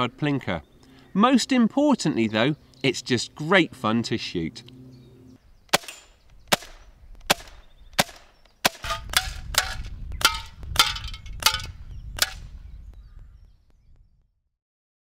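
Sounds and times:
silenced air rifle shots: 5.7s - 12.5s
pellets clanging off tin cans: 8.8s - 11.7s.

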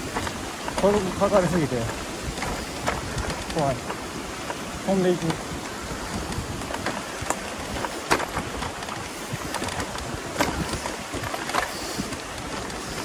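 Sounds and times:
bike rattling over bumps: 0.0s - 13.0s
tyres on dirt: 0.0s - 13.0s
wind on microphone: 0.0s - 13.0s.

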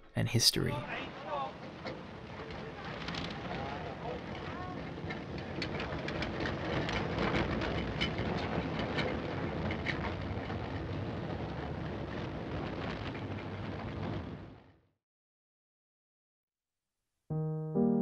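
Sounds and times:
tram rumbling and rattling: 1.2s - 14.7s.

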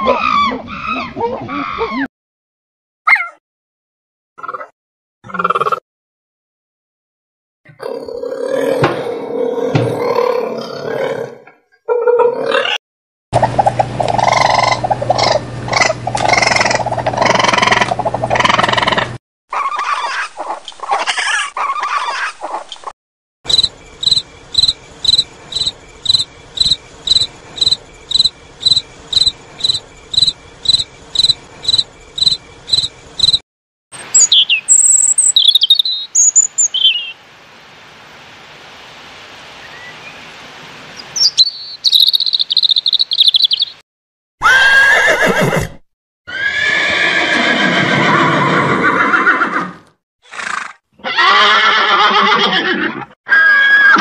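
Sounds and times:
raccoons chittering: 13.4s - 22.6s, 23.5s - 33.4s
cricket chirping: 23.5s - 33.4s, 41.0s - 43.7s
robin singing: 23.5s - 33.4s, 34.0s - 37.2s, 41.0s - 43.8s
horse neighing: 44.4s - 54.0s.

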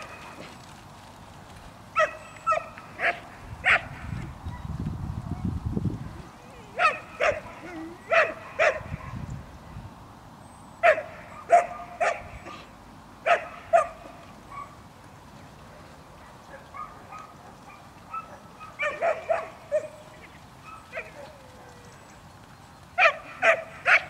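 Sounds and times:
dog barking: 2.0s - 4.0s, 6.8s - 9.2s, 10.8s - 12.7s, 13.3s - 14.8s, 16.2s - 20.0s, 23.0s - 24.0s.

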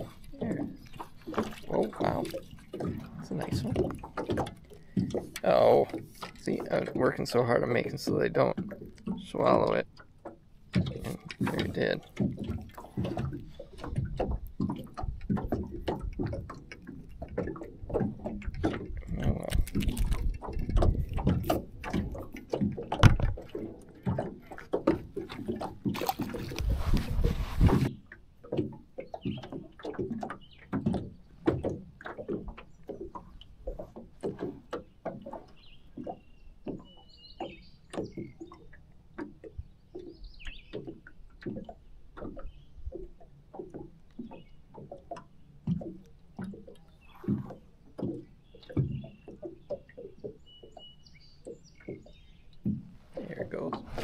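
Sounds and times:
knocks and rustling on boat: 0.0s - 54.0s
small waves lapping against hull: 0.0s - 54.0s
birds chirping faintly: 46.6s - 54.0s.

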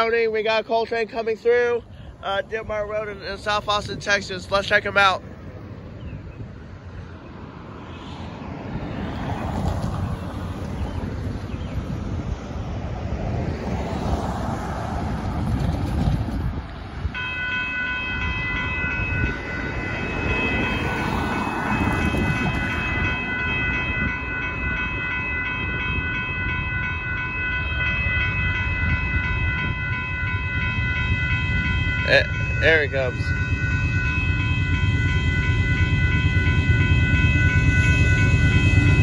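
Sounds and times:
railroad crossing bells ringing: 0.0s - 6.2s, 17.0s - 39.0s
wind rumble on microphone: 2.1s - 39.0s.

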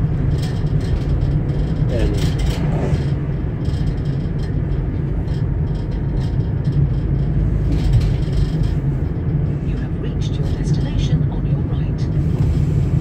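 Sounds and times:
vehicle driving on road: 0.0s - 13.0s.

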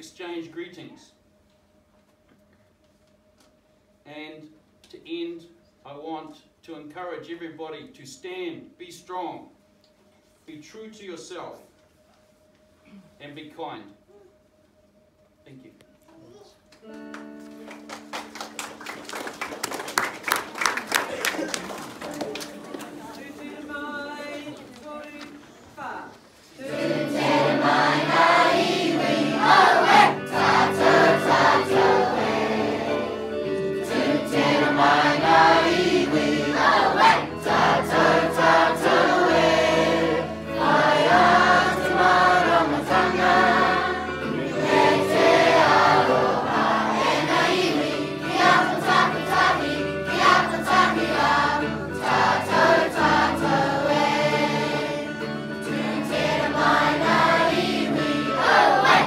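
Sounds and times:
guitar chords: 16.2s - 19.6s, 26.6s - 59.0s
group of people singing: 26.5s - 59.0s.

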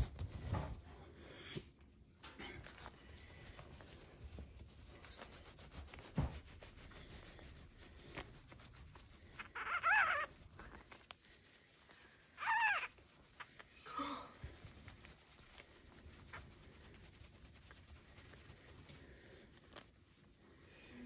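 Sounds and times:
newborn puppy crying: 9.4s - 11.0s, 12.3s - 13.6s.

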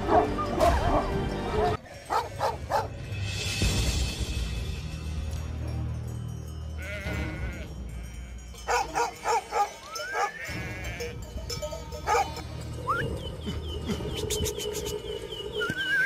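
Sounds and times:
background music: 0.0s - 16.0s
sheep bleating: 6.8s - 8.4s, 9.0s - 11.2s.

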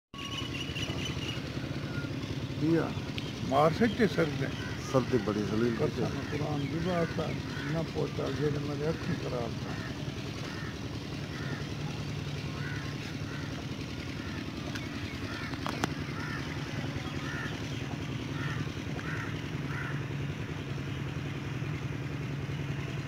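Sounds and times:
bird calling: 0.2s - 23.0s
low engine hum: 0.2s - 23.0s.

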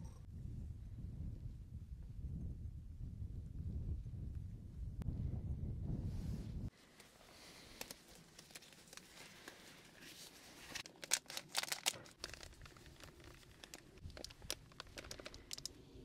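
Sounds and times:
packaging crinkling and rustling: 7.6s - 15.7s.

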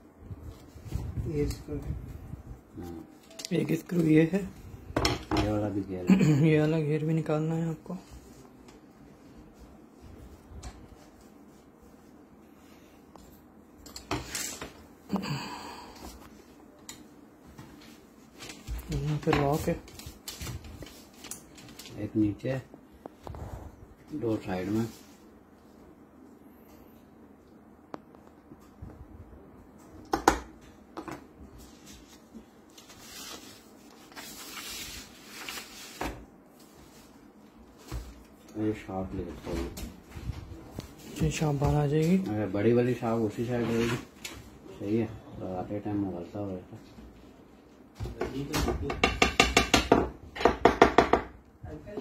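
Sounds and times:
paper rustling: 17.7s - 22.2s, 31.6s - 38.4s
rustling scrapes: 31.6s - 36.0s.

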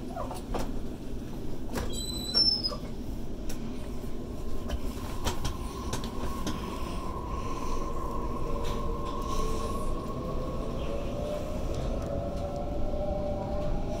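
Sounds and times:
train wheels rumbling on track: 0.0s - 14.0s.

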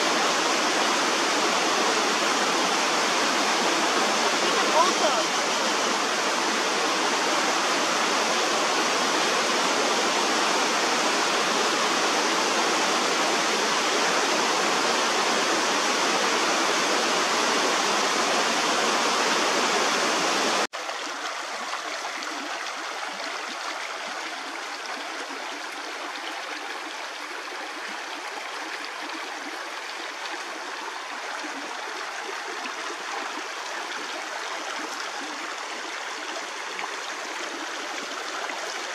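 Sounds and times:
creek water rushing: 0.0s - 38.9s.

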